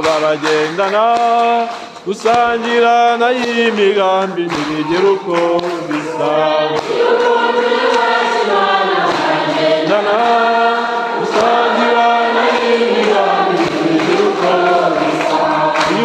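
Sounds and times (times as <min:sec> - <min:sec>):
choir singing a hymn: 0:05.0 - 0:16.0.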